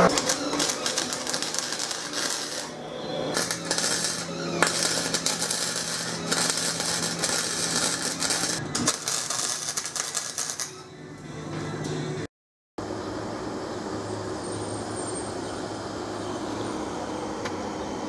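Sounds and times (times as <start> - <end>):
welding arc crackling: 0.0 - 10.8.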